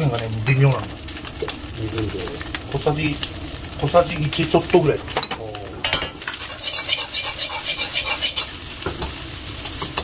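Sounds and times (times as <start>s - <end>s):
rice sizzling: 0.0s - 10.0s
metal ladle scraping wok: 6.3s - 8.6s.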